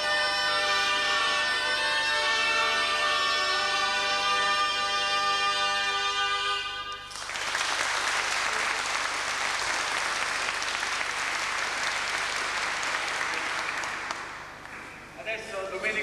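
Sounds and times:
bagpipe and shawms chord: 0.0 - 7.1
audience applauding: 7.1 - 14.9.

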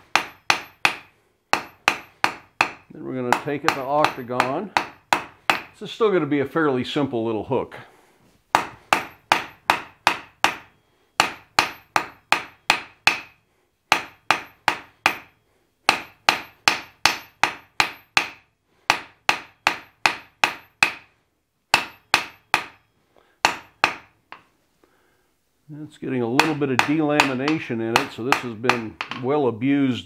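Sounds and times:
hammer striking steel on anvil: 0.0 - 5.8, 8.5 - 21.1, 21.7 - 24.5, 26.4 - 29.4.

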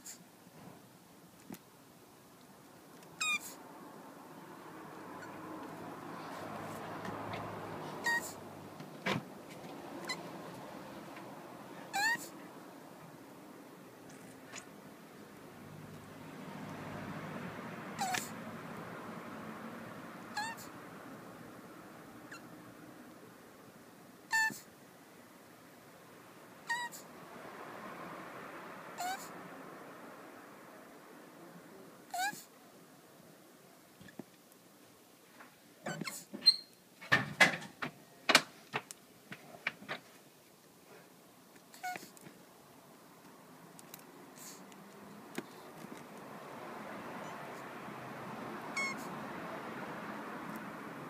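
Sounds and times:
tortoise squeaking: 3.0 - 3.6, 5.1 - 5.4, 7.2 - 8.4, 9.5 - 10.5, 11.9 - 12.4, 18.0 - 18.4, 20.3 - 20.7, 22.3 - 22.6, 24.3 - 24.7, 26.6 - 27.1, 29.0 - 29.3, 32.1 - 32.5, 35.8 - 36.8, 41.7 - 42.2, 48.7 - 49.2.

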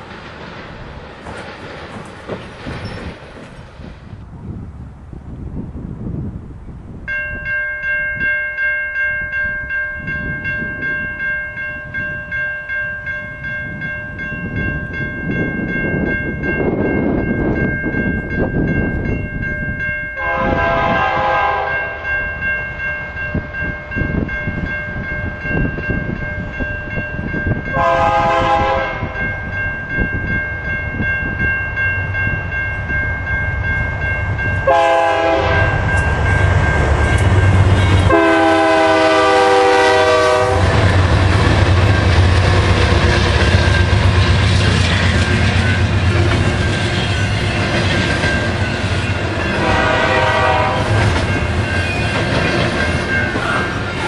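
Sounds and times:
railroad crossing bell ringing: 7.0 - 54.0
locomotive air horn blasts: 20.2 - 22.0, 27.7 - 29.2, 34.6 - 35.8, 37.8 - 40.9, 49.5 - 51.0.

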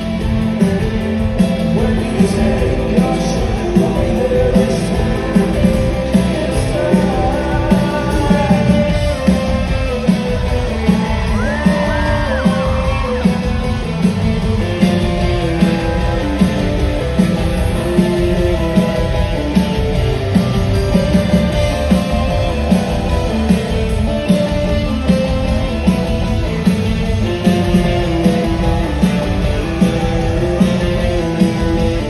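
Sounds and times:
live rock band playing: 0.0 - 32.0
person singing: 1.6 - 10.0.

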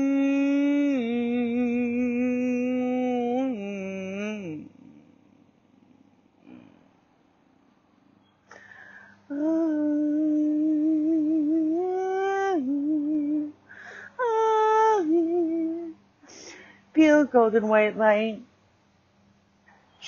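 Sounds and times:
woman humming long notes: 0.0 - 5.1, 9.3 - 13.6, 14.2 - 16.0
in-breath: 8.5 - 9.3, 13.6 - 14.2, 16.2 - 16.9.

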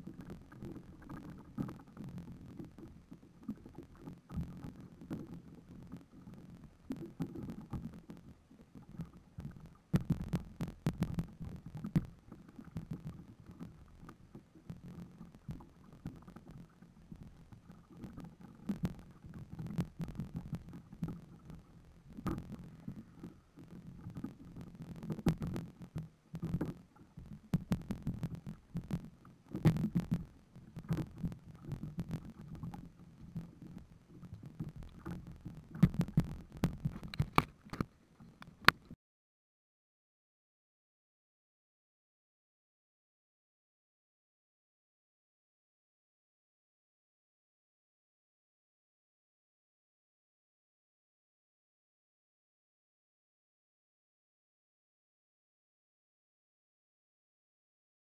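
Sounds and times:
sharp clicks: 35.7 - 39.0.

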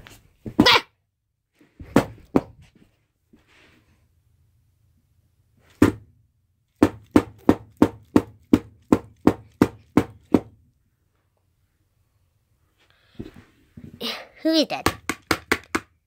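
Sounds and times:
sharp knocking on hard surface: 6.8 - 10.5, 14.8 - 15.9.

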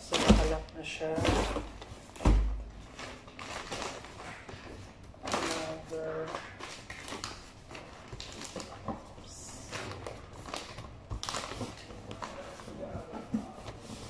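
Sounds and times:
wrapping paper rustling: 0.0 - 14.0.

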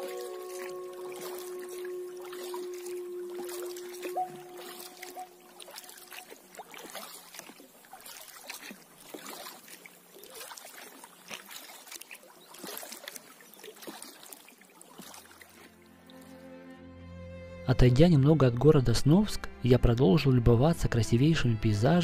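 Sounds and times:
water dripping off paddle: 0.0 - 16.3
paddle dipping in water: 0.0 - 16.4.

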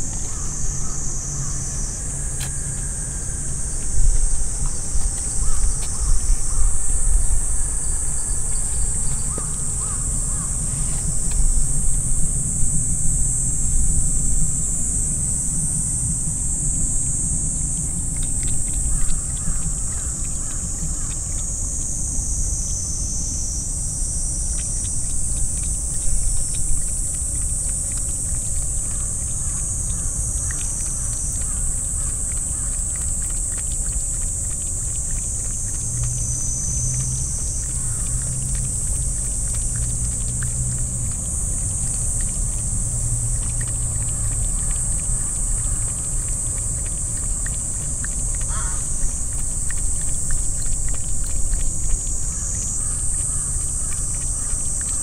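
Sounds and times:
low rumble: 0.0 - 19.4
cat lapping water: 0.0 - 55.0.

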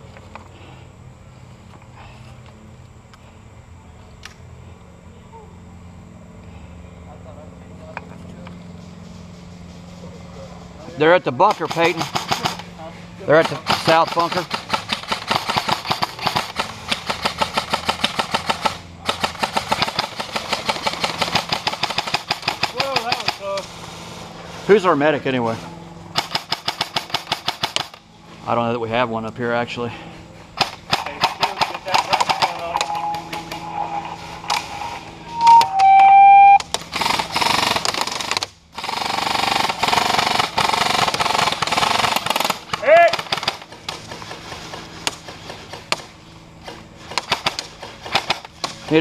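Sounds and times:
airsoft guns firing: 11.4 - 12.7, 13.3 - 23.6, 26.1 - 28.0, 30.6 - 33.6, 36.8 - 48.8
loud held high note: 32.7 - 36.6.

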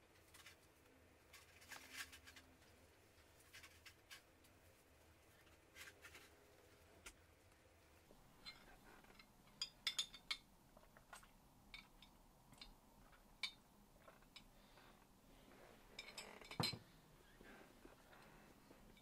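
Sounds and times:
glass jar clinking on wooden desk: 16.0 - 16.9.

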